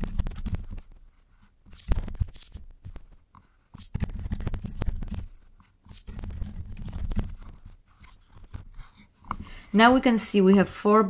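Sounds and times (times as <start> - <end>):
computer keyboard typing: 0.0 - 0.9, 3.8 - 5.3, 5.9 - 7.6.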